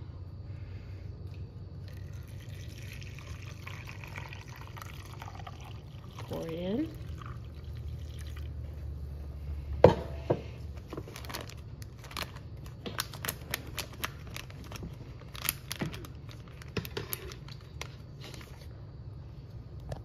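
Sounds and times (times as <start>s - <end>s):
glass cup knocking on counter: 9.8s - 10.4s
plastic bag crinkling: 10.8s - 18.7s.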